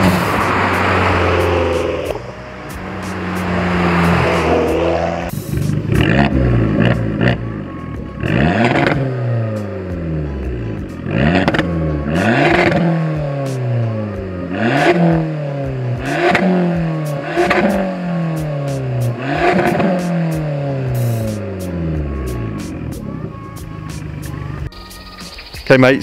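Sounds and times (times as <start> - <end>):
exhaust crackles: 0.0 - 23.4
car engine revving: 0.0 - 24.6.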